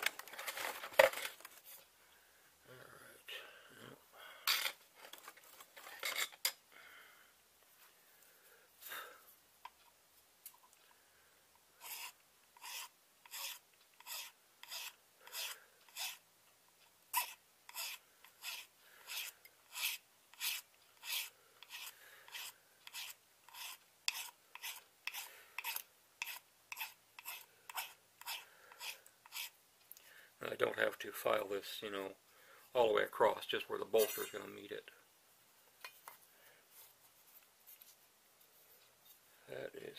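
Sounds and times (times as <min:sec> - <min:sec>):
hand file rasping: 0:11.8 - 0:16.2, 0:17.1 - 0:29.6.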